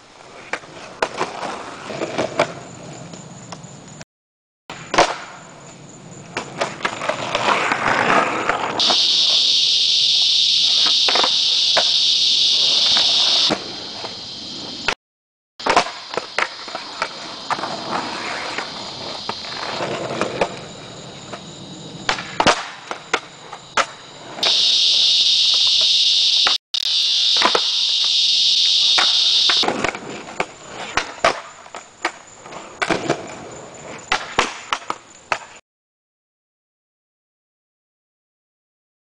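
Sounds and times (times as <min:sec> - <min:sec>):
skateboard wheels rolling on concrete: 0:00.0 - 0:04.0, 0:04.7 - 0:15.0, 0:15.6 - 0:25.9, 0:27.2 - 0:35.6
high-pitched insect buzz: 0:08.8 - 0:15.0, 0:16.1 - 0:19.9, 0:24.4 - 0:29.6
skateboard clacks: 0:22.0 - 0:24.0, 0:29.6 - 0:33.4, 0:34.1 - 0:35.6.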